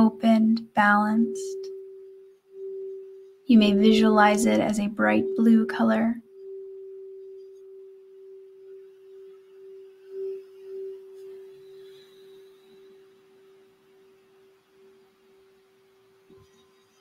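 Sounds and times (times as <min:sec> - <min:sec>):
singing bowl ringing tone: 0:00.0 - 0:17.0.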